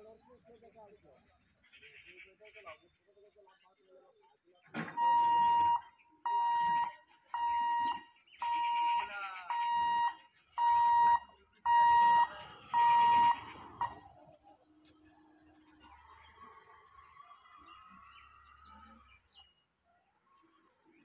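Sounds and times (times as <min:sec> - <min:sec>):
level crossing buzzer beeping: 0:05.0 - 0:14.0.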